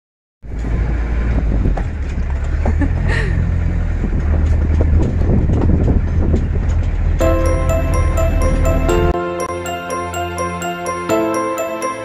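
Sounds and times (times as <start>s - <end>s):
truck engine rumble: 0.4s - 9.2s
short high-pitched sound: 7.2s - 12.0s.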